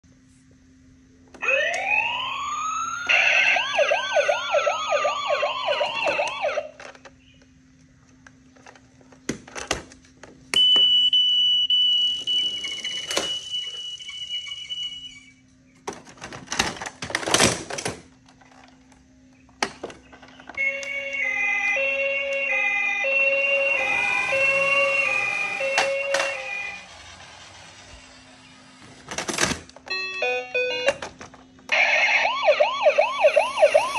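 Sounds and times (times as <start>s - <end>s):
toy siren wailing: 1.4s - 6.8s, 20.6s - 28.8s, 31.7s - 33.9s.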